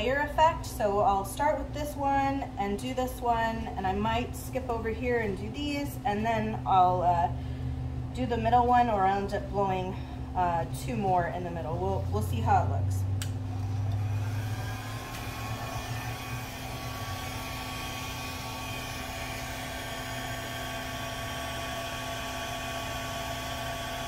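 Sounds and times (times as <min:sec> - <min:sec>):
hair dryer running: 0:13.2 - 0:24.0.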